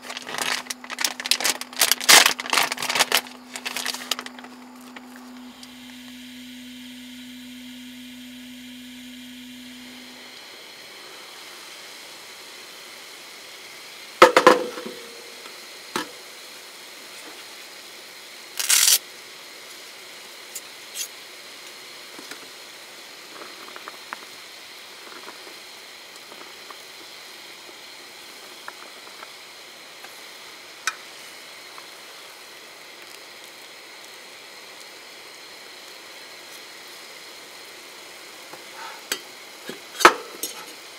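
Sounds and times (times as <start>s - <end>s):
steady hiss: 0.0s - 40.9s.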